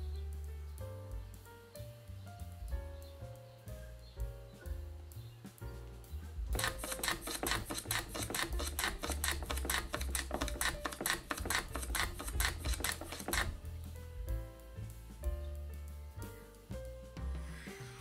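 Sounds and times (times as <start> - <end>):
soft background music: 0.0 - 18.0
hand plane swishing strokes: 6.6 - 13.6, 17.2 - 18.0.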